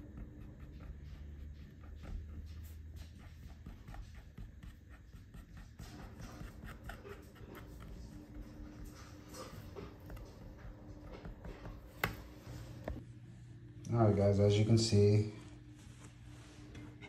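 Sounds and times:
paint marker scratchy taps: 0:00.0 - 0:13.0.

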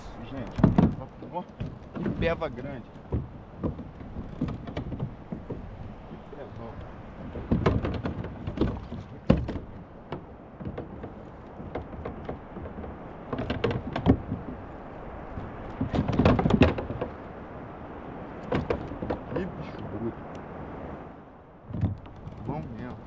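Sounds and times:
knocks on kayak hull: 0:00.4 - 0:17.2, 0:18.4 - 0:19.4.

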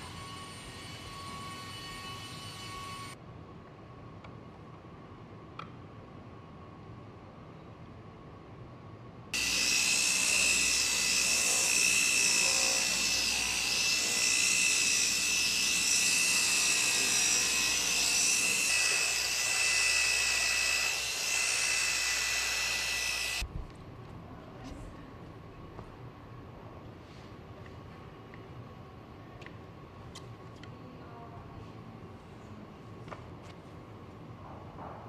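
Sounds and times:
polishing machine whining: 0:09.4 - 0:23.4.

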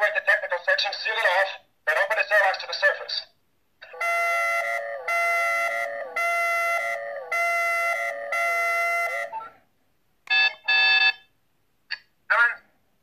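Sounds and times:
electronic klaxon alarm pulses: 0:04.0 - 0:09.3
short beep: 0:10.3 - 0:11.2.

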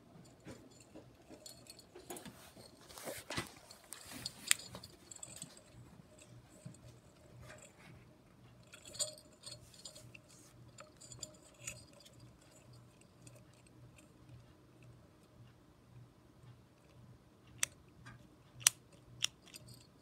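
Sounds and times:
clinks of small tools handled: 0:00.3 - 0:07.8, 0:08.6 - 0:13.5.

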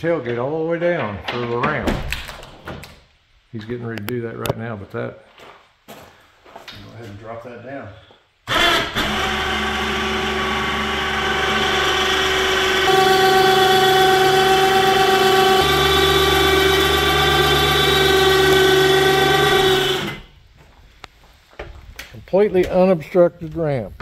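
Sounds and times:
winch motor running: 0:08.5 - 0:20.3.

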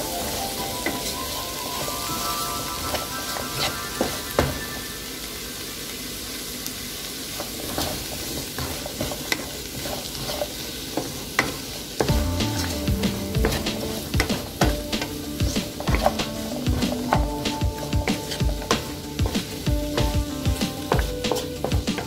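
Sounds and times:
vegetables sizzling in a pan: 0:00.0 - 0:22.0
spatula scraping a pan: 0:07.5 - 0:11.1, 0:12.4 - 0:22.0.

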